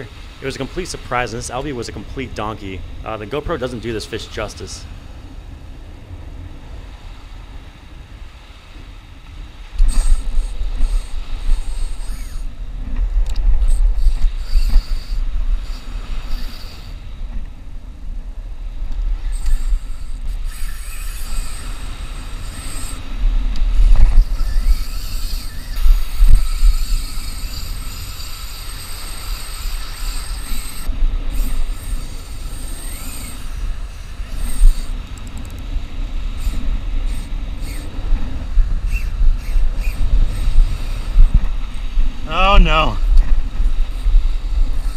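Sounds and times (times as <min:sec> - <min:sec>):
small surf: 0:00.0 - 0:44.9
wind buffeting microphone: 0:04.6 - 0:44.9
spinning reel whining: 0:09.8 - 0:17.0, 0:19.2 - 0:35.6, 0:36.3 - 0:41.6, 0:43.5 - 0:44.9.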